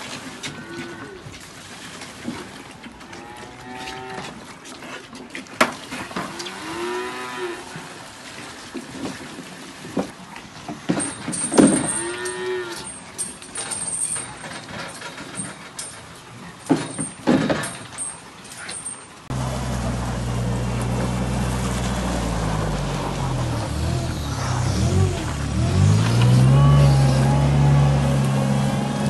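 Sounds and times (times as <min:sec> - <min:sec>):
calves mooing: 0:11.8 - 0:12.9.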